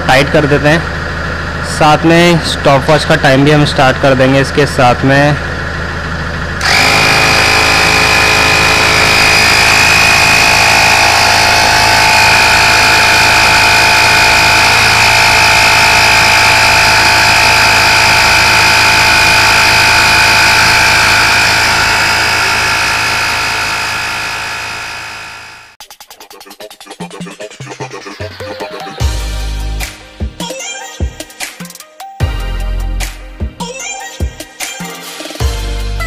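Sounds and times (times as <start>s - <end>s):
tyre inflator compressor running: 0.0s - 25.8s.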